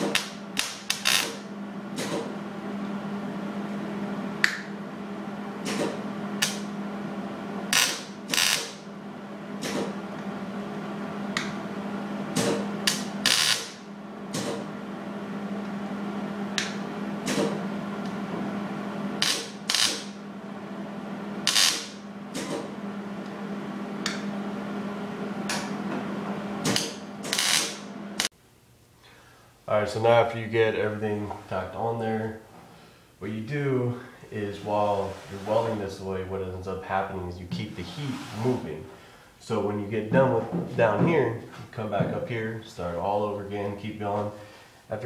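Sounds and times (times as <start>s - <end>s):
crackling welding tacks: 0.0s - 1.5s, 6.4s - 6.7s, 7.7s - 8.8s, 12.4s - 13.9s, 19.2s - 20.2s, 21.5s - 22.6s, 26.6s - 28.3s
steady low hum: 0.0s - 45.0s.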